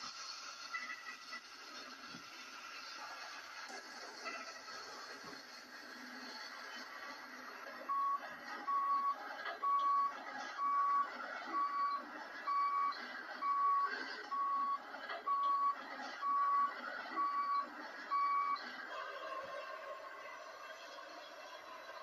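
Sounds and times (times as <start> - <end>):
backup alarm beeping: 7.9 - 18.6.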